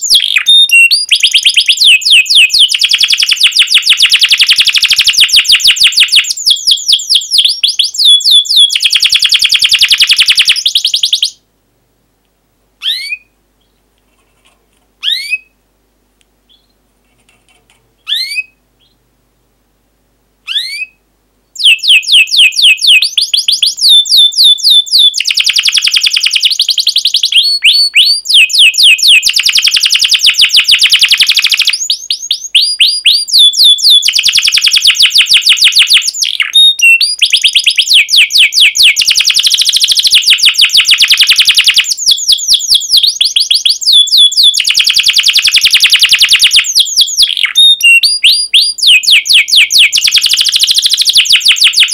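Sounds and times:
canary singing: 0.0 - 11.4, 12.8 - 13.8, 15.0 - 15.6, 16.4 - 16.8, 18.0 - 19.0, 20.4 - 51.9.

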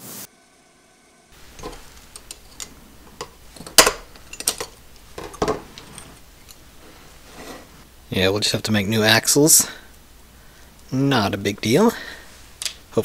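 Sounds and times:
toy truck parts clicking: 1.4 - 5.4.

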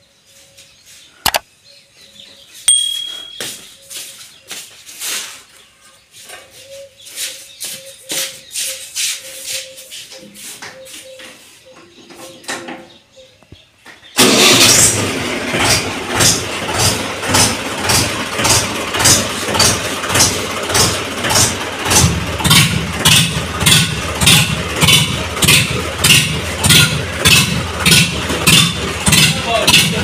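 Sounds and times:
tractor diesel engine running: 14.2 - 30.0.

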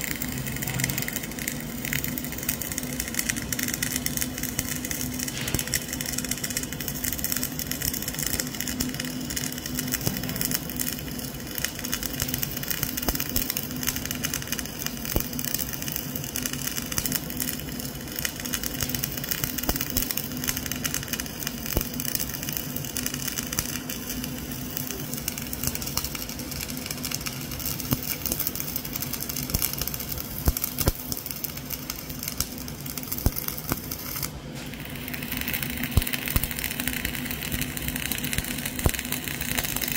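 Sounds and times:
welding arc crackling: 0.0 - 39.9.

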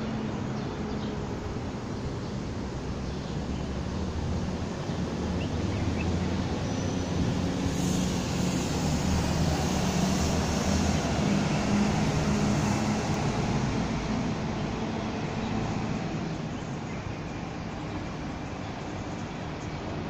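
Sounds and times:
broad hiss: 7.3 - 13.5.

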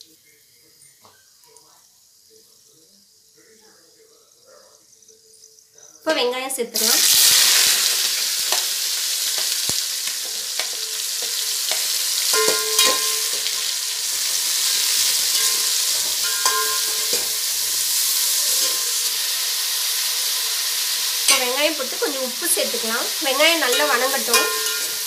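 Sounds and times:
onions sizzling in hot oil: 6.1 - 25.0
ladle scraping and knocking pot: 10.2 - 17.6, 23.7 - 25.0.

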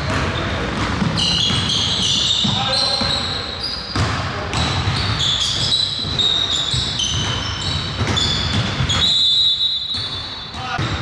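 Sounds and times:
basketball bouncing on wooden floor: 0.0 - 3.2, 3.9 - 9.2
sneakers squeaking on court: 0.0 - 11.0.

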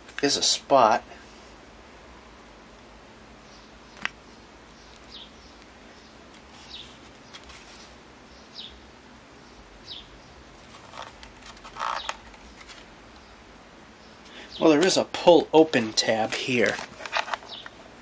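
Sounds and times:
low hiss: 0.0 - 10.8
handling rustles: 10.6 - 12.9, 15.8 - 17.7.

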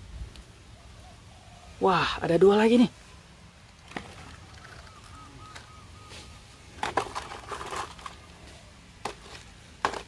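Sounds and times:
plastic toy trucks clattering: 6.8 - 8.3, 9.0 - 10.0.

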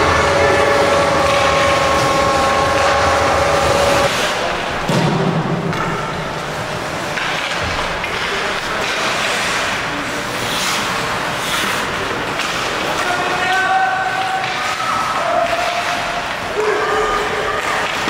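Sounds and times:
steady held tone: 0.0 - 4.1
arena noise: 0.0 - 18.0
hockey sticks clattering: 0.0 - 18.0
skates scraping ice: 6.4 - 18.0.

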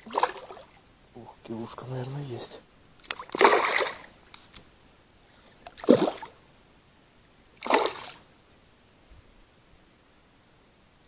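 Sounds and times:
fish splashing at water surface: 0.0 - 0.8, 3.0 - 4.2, 5.6 - 6.4, 7.6 - 8.3.

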